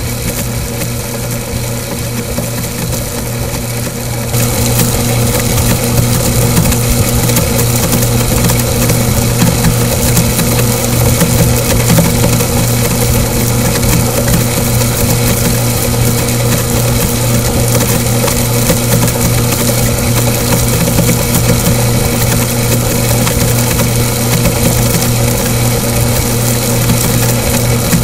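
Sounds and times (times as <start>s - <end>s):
pump motor humming: 0.0s - 28.0s.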